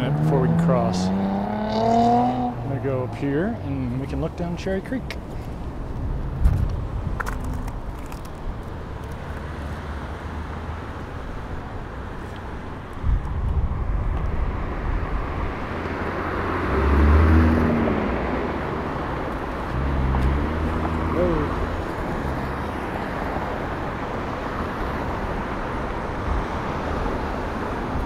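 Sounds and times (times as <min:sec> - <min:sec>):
vehicle passing close: 0:00.0 - 0:03.6, 0:13.7 - 0:28.0
cars driving past: 0:00.0 - 0:28.0.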